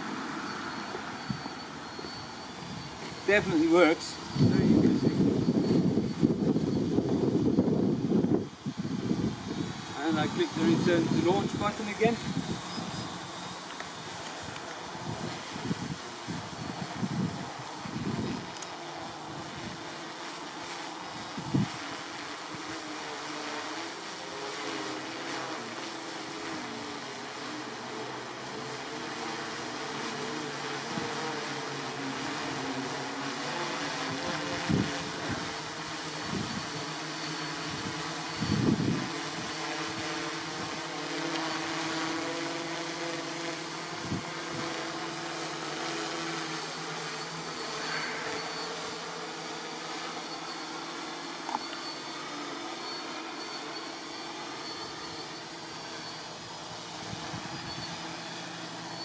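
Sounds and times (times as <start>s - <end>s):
drone propellers humming: 0.0s - 59.0s.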